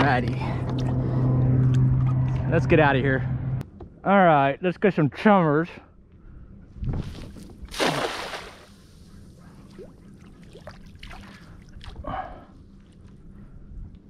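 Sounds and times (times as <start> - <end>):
cast net splashing on water: 7.7 - 8.8.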